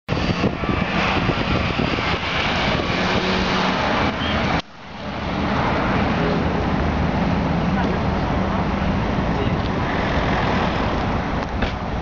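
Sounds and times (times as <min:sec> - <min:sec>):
car engine revving: 0:00.1 - 0:04.6.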